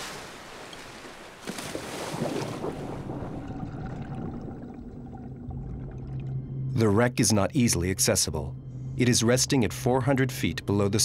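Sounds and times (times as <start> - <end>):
diver splashing into water: 0.0 - 3.6
water churning: 0.0 - 6.5
muffled underwater hum: 2.7 - 11.0.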